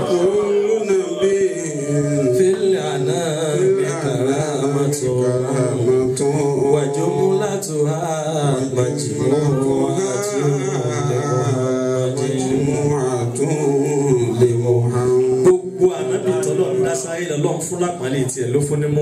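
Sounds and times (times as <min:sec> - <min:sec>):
man chanting through pa: 0:00.0 - 0:18.3.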